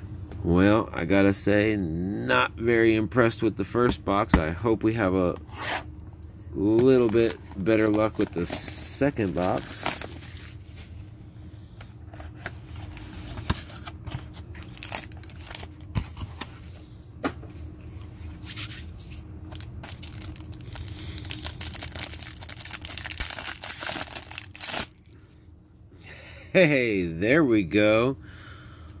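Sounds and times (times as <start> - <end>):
packaging torn and crinkled: 6.7 - 11.0, 14.4 - 16.1, 19.4 - 25.2.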